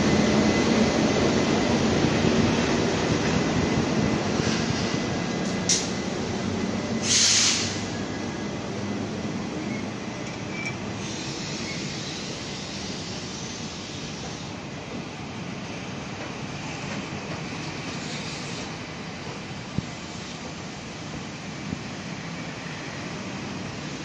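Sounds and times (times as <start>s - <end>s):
train carriages rumbling over rails: 0.0s - 24.0s
brief hiss: 7.0s - 7.9s.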